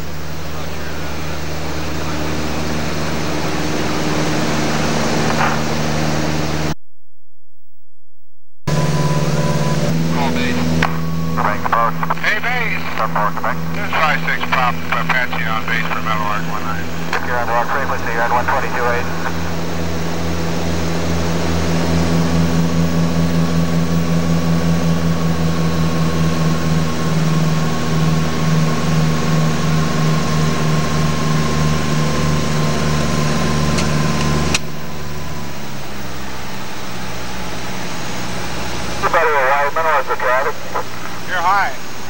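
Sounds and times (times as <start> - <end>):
airplane engine droning: 0.0 - 6.8, 8.6 - 42.0
faint high whine: 0.0 - 28.8.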